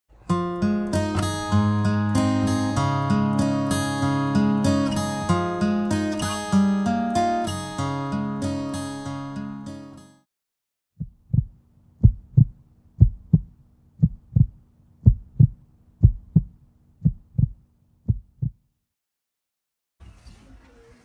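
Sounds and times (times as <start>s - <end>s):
heartbeat thumps: 11.0s - 18.6s.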